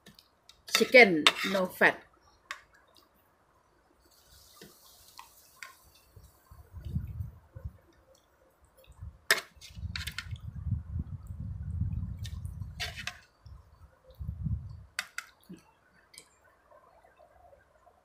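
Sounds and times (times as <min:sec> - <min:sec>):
soup dripping and pouring: 0:04.0 - 0:07.2.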